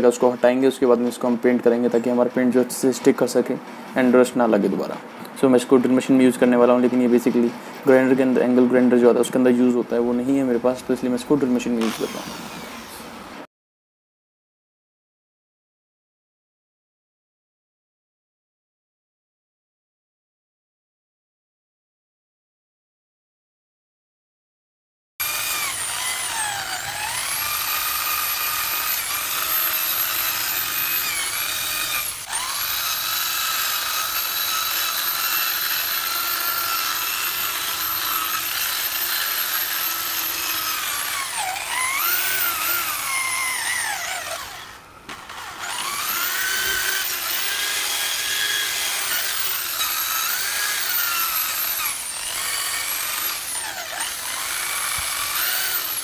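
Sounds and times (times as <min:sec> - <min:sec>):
electric drill motor whining: 0:11.8 - 0:13.2, 0:25.2 - 0:56.0
wire brush grinding on metal: 0:25.2 - 0:56.0.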